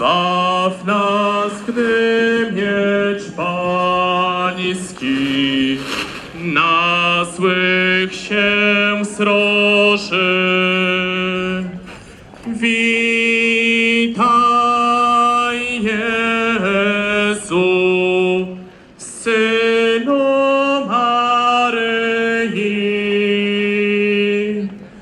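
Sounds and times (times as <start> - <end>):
man singing a slow chant: 0.0 - 24.9.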